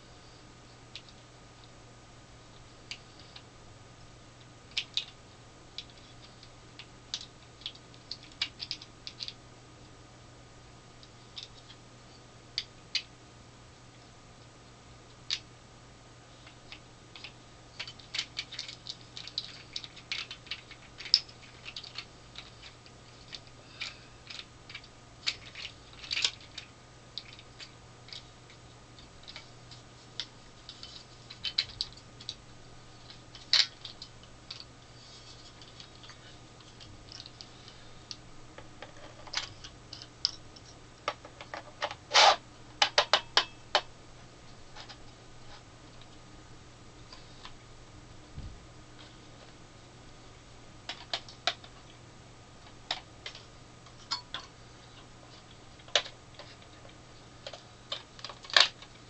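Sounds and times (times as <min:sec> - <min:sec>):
plastic parts clicking and snapping: 0:05.8 - 0:09.4, 0:16.4 - 0:32.4, 0:33.1 - 0:34.7, 0:38.1 - 0:43.9, 0:50.9 - 0:52.0, 0:52.6 - 0:59.0.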